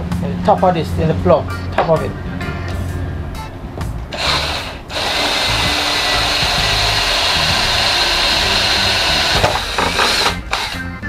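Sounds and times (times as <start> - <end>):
electric drill boring into plastic: 4.1 - 10.8.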